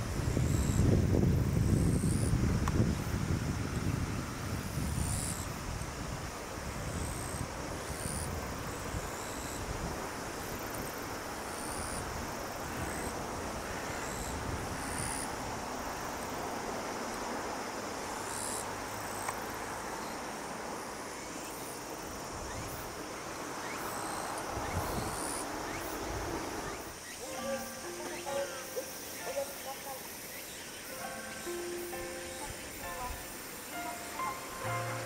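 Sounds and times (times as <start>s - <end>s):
wind rumbling on microphone: 0.0s - 16.8s, 24.3s - 27.0s
steady hiss: 0.0s - 35.0s
high-pitched chirps: 27.2s - 30.0s.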